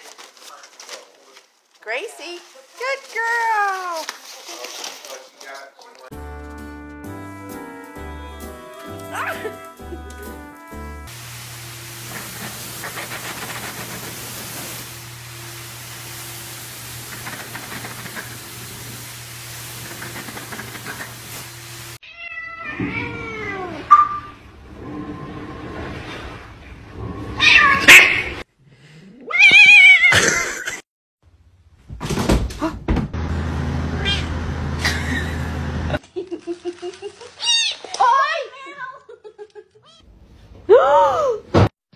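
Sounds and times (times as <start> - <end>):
cat meowing and yowling: 22.0 - 23.9, 27.4 - 28.2, 29.3 - 30.1.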